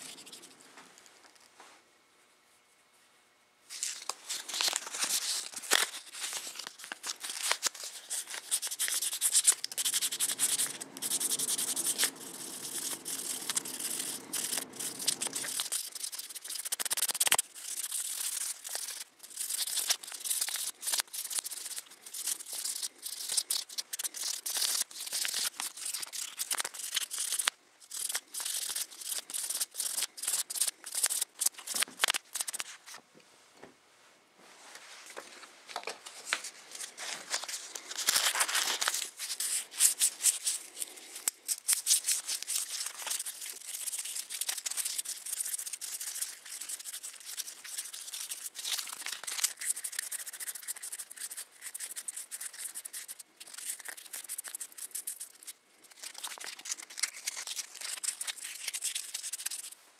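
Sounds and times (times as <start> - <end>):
metal ring sanded on abrasive paper: 7.2 - 32.6, 38.0 - 59.8.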